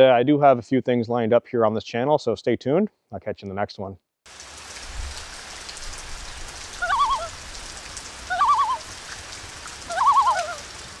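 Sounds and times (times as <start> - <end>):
short warbling calls: 6.8 - 7.4, 8.2 - 9.0, 9.8 - 10.7.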